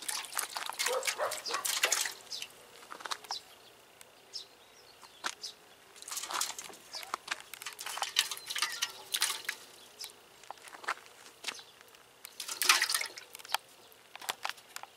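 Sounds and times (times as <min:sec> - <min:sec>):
water splashing in metal pot: 0:00.0 - 0:02.6, 0:06.0 - 0:06.8, 0:07.6 - 0:09.8, 0:12.4 - 0:13.3.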